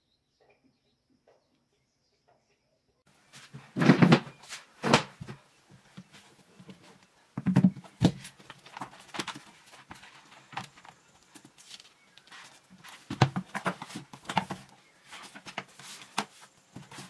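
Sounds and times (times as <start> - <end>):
objects thudding on wooden desk: 7.4 - 8.2
book pages rustling: 7.6 - 17.0.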